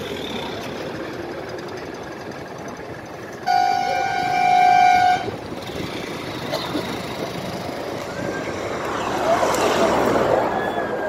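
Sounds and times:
street background noise: 0.0s - 11.0s
vehicle horn honking: 3.4s - 5.4s.

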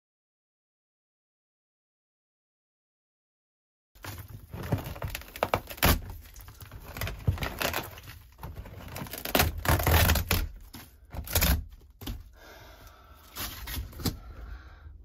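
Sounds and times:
plywood and foam tearing: 4.0s - 12.3s, 13.2s - 14.3s.

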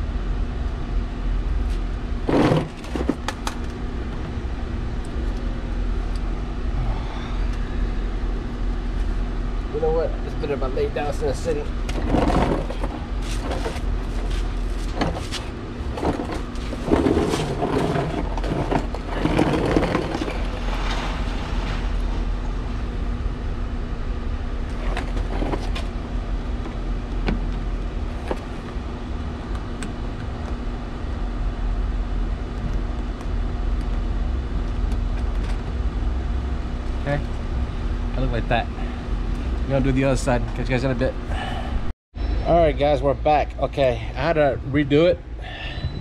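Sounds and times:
low background rumble: 0.0s - 41.9s, 42.8s - 46.0s
faint hum: 0.0s - 46.0s
handling noises: 11.8s - 22.0s.

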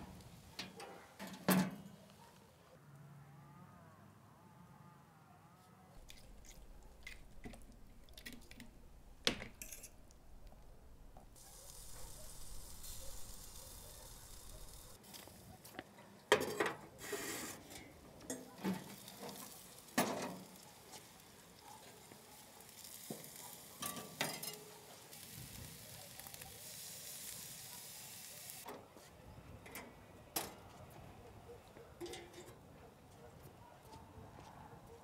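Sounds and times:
metal grill lid clanks: 0.6s - 1.9s, 18.3s - 20.5s, 23.8s - 24.7s, 32.0s - 32.6s
food sizzling over coals: 6.0s - 15.8s, 17.0s - 28.7s.

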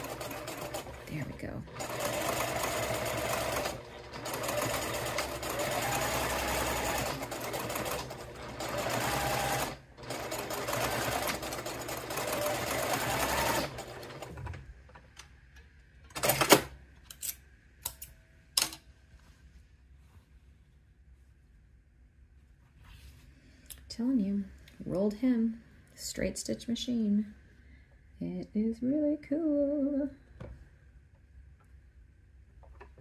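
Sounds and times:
sewing machine running: 0.0s - 14.4s.

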